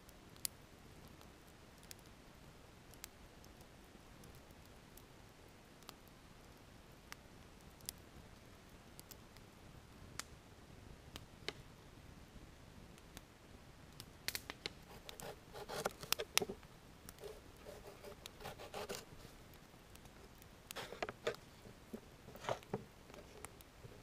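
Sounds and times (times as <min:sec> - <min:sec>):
wood fire crackling and popping: 0:00.0 - 0:24.0
knife cutting on plastic board: 0:17.2 - 0:19.1.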